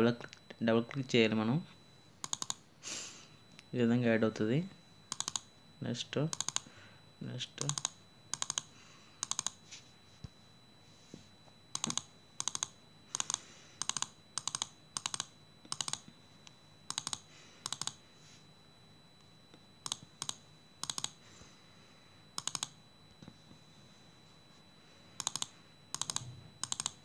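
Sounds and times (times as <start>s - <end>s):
fingertips tapping touchscreen: 2.2s - 2.6s.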